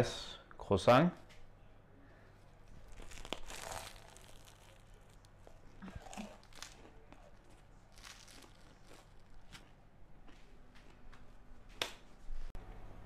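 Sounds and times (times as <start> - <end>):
croissant crust crunching: 2.5 - 10.4
croissant tearing and crackling: 2.6 - 9.8.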